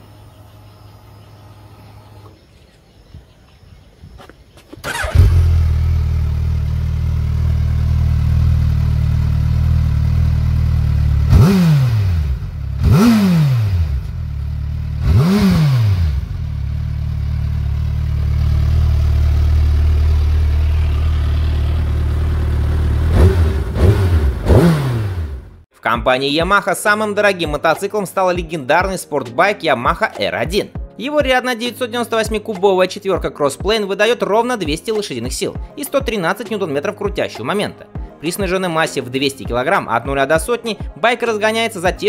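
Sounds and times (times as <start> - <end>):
motorcycle engine starting and idling: 4.7 - 25.7
motorcycle throttle revving: 4.8 - 25.6.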